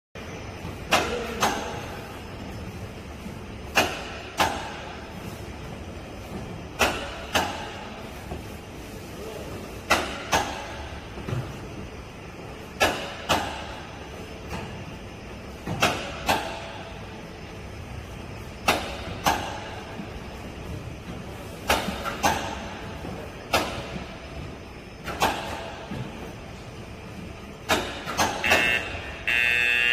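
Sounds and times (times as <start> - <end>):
steady machinery hum: 0.2 - 29.9
sharp metallic clunks: 27.6 - 29.0.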